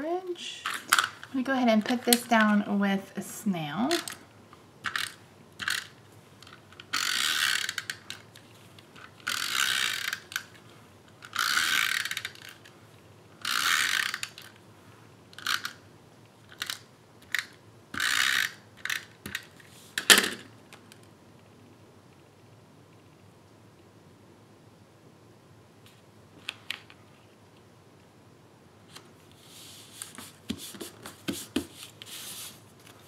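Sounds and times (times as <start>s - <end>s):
tape runner ratcheting rasp: 6.9s - 8.2s, 9.2s - 10.4s, 11.2s - 12.6s, 13.4s - 14.4s.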